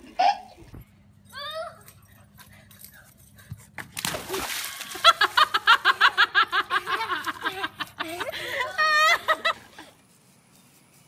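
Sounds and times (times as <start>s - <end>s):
young child laughing: 0.0s - 0.7s, 5.0s - 10.0s
water splashing: 4.0s - 5.7s.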